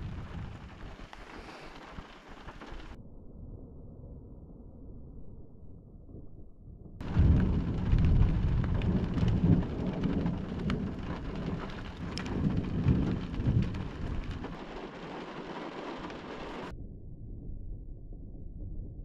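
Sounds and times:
steady rain: 0:00.0 - 0:03.0, 0:07.0 - 0:16.7
thunder rolling with crackles: 0:00.0 - 0:03.0, 0:06.1 - 0:19.0.

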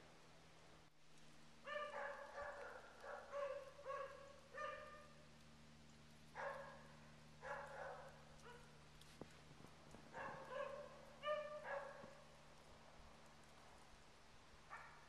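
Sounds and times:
dog barking faintly: 0:01.6 - 0:05.2, 0:06.4 - 0:08.8, 0:10.1 - 0:12.3, 0:14.7 - 0:15.0.

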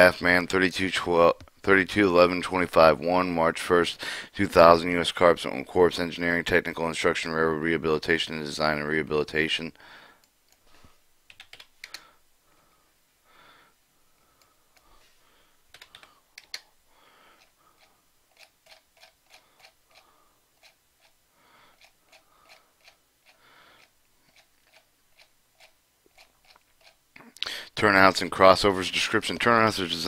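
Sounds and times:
computer keyboard clicking: 0:11.3 - 0:12.0, 0:15.7 - 0:16.6.

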